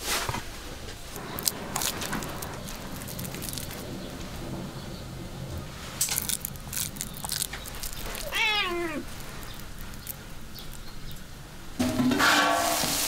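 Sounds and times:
cat meowing: 7.8s - 9.8s.

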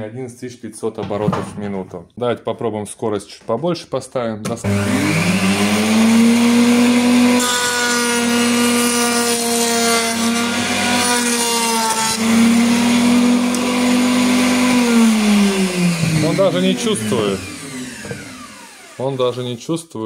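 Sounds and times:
router motor whining: 4.6s - 19.4s.

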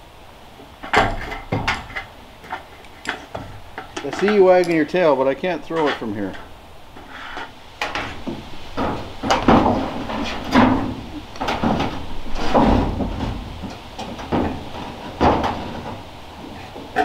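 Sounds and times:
knocks on metal roof: 0.8s - 2.6s, 7.8s - 17.0s.

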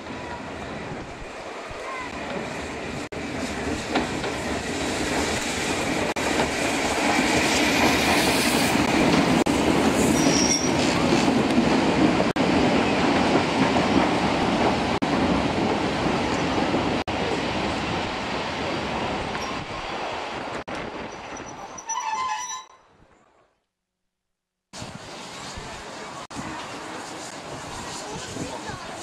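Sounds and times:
train wheels rumbling on rails: 0.0s - 22.1s, 24.8s - 29.0s
high squeak: 10.0s - 11.0s, 21.2s - 22.9s
steam hiss: 24.8s - 29.0s.

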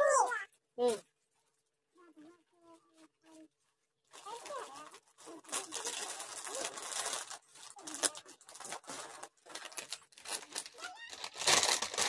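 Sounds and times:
plastic snack packets rustling: 2.8s - 12.0s.

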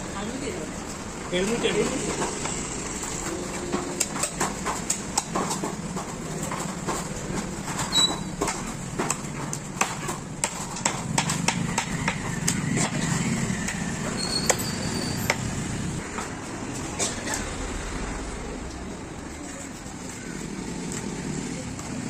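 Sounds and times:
knife chopping fish on wood: 3.7s - 14.7s.

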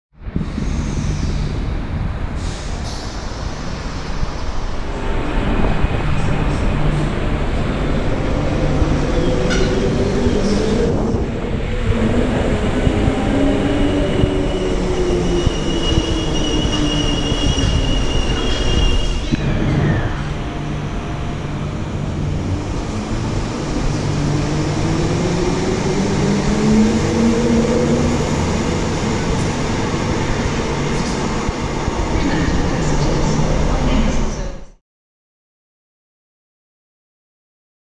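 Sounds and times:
high wheel squeal: 15.0s - 20.2s.

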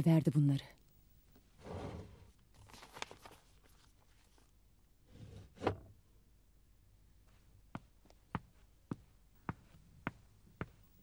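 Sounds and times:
paper rustling: 2.3s - 4.5s.

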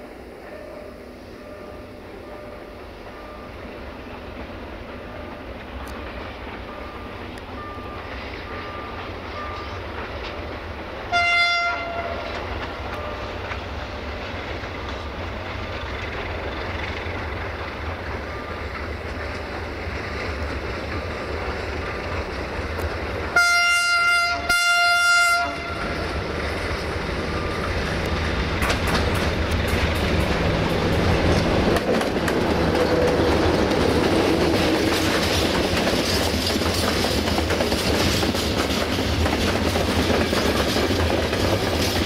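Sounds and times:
train wheels clicking on rails: 0.0s - 42.0s
locomotive horn blasts: 11.1s - 12.4s, 23.3s - 26.2s.

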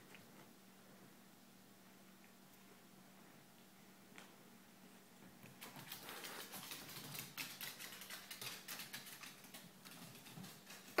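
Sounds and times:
claws scrabbling on hardwood floor: 5.4s - 11.0s.

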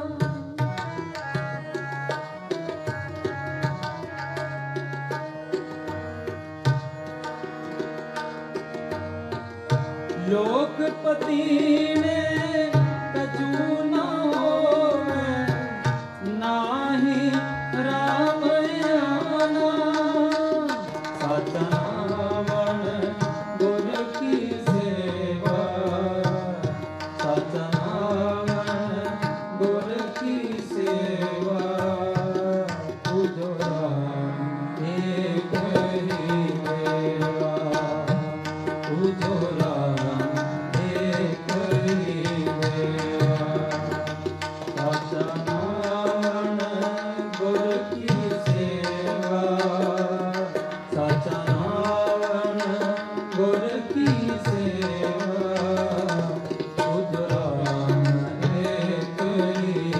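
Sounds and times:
harmonium: 0.0s - 59.9s
tabla strokes: 17.2s - 33.8s, 34.8s - 59.9s.

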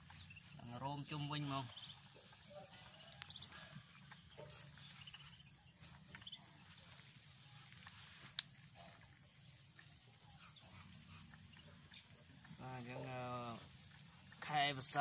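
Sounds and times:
ducklings peeping: 0.0s - 15.0s.

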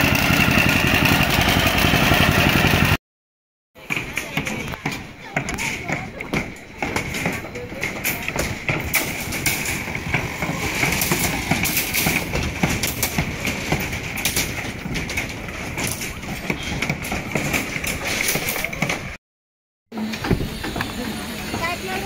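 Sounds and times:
small clicks and metal clatter: 7.0s - 19.1s.

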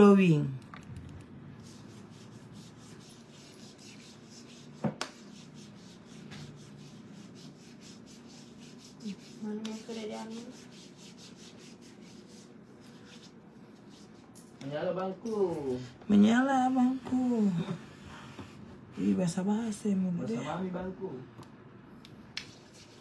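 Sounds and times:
hands rubbing lotion on skin: 1.5s - 14.4s, 22.1s - 23.0s.

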